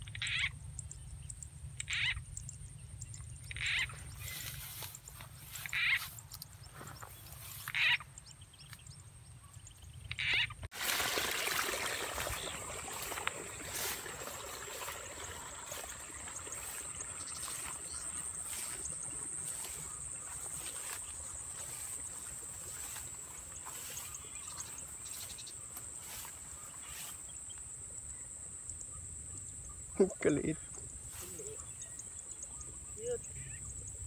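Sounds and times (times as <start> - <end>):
frog calls: 0.0 - 8.2, 10.0 - 10.7, 11.7 - 27.6
high-pitched insect drone: 12.9 - 27.3.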